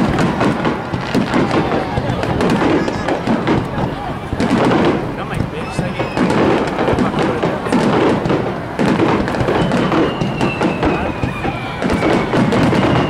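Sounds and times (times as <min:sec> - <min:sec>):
fireworks bangs and crackles: 0:00.0 - 0:13.0
high whistle falling in pitch: 0:05.6 - 0:06.7, 0:09.2 - 0:13.0.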